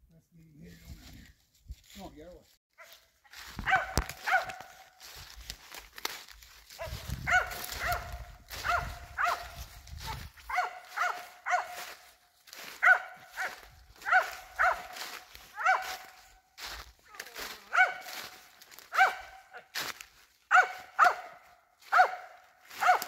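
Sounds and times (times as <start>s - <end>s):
dog barking: 2.8s - 4.9s, 6.7s - 16.3s, 17.2s - 19.7s, 20.5s - 23.0s.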